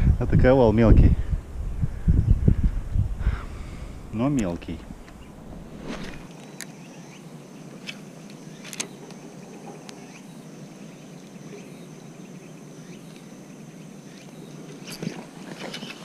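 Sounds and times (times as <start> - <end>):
low steady rumble: 0.0 - 6.3
insects buzzing: 1.3 - 16.0.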